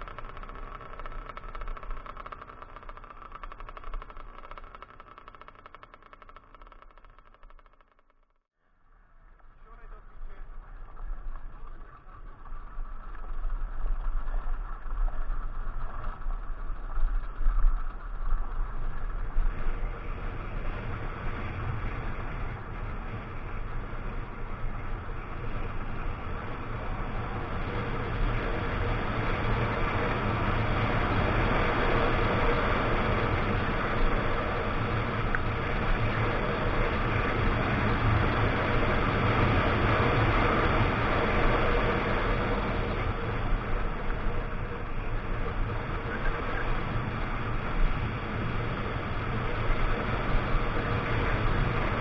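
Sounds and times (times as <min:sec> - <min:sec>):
dirt bike engine running: 0:00.0 - 0:08.4, 0:09.4 - 0:52.0.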